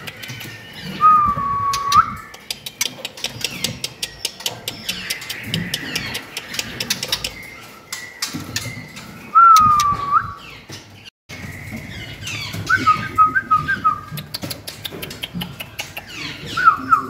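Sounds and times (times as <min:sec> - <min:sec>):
bird whistling: 0:01.0 - 0:02.2, 0:08.5 - 0:10.4, 0:12.6 - 0:14.1, 0:16.5 - 0:17.0
sharp clicks: 0:01.7 - 0:07.4.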